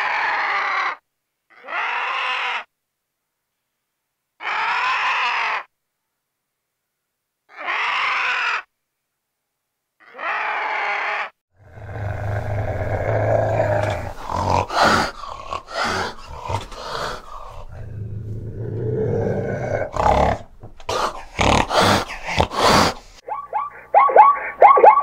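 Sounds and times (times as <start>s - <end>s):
cat growling and spitting: 11.6s - 23.2s.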